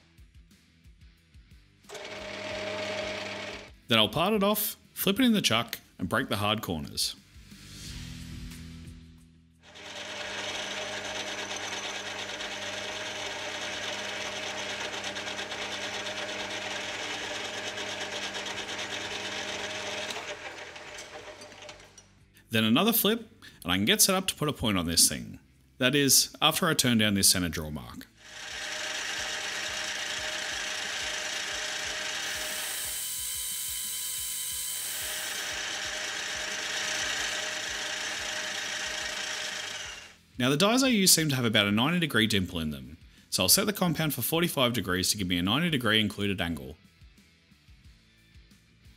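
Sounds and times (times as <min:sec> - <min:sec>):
metal lathe humming and whining: 0:01.9 - 0:03.7, 0:09.7 - 0:22.0, 0:28.2 - 0:40.1.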